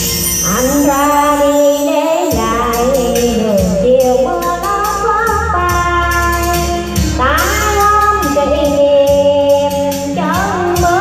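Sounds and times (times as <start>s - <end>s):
shaken percussion: 0.0s - 8.3s
backing music with beat: 0.0s - 11.0s
woman singing: 0.4s - 11.0s.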